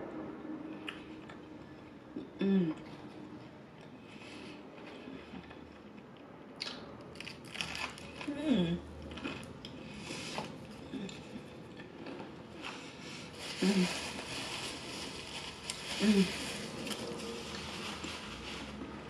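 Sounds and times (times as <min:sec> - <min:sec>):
person humming: 0:02.3 - 0:02.9, 0:13.6 - 0:14.1, 0:16.0 - 0:16.6
paper napkin rustling: 0:12.7 - 0:19.0.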